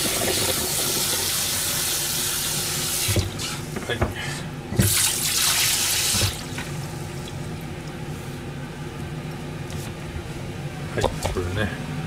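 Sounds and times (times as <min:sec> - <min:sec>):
steady low hum: 0:03.2 - 0:05.3, 0:06.1 - 0:12.0.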